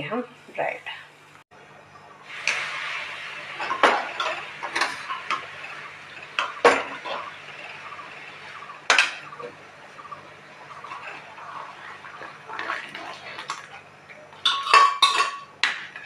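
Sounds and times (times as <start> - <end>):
steady hiss: 1.6 - 10.6
metal pots clanking together: 3.5 - 16.0.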